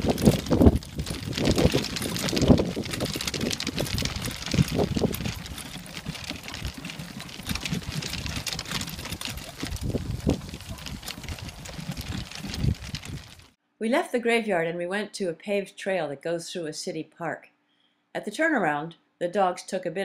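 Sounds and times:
wind buffeting microphone: 0.0s - 13.5s
wagon wheels crunching and rattling: 0.0s - 13.6s.

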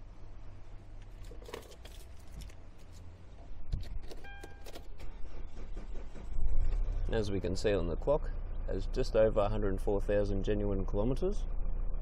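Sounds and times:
low steady hum: 0.0s - 5.6s
car key and controls clicking: 3.8s - 5.1s
short electronic beep: 4.2s - 4.7s.

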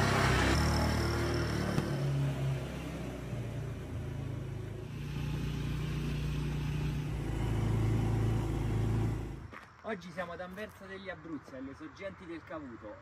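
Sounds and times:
quad bike engine running: 0.0s - 2.1s, 4.8s - 9.5s.

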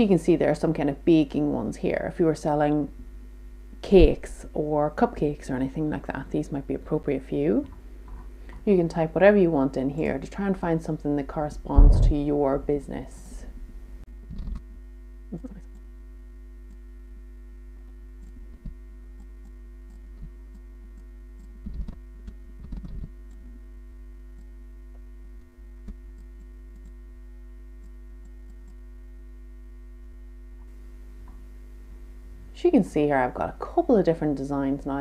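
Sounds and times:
electrical mains hum: 0.0s - 35.0s.

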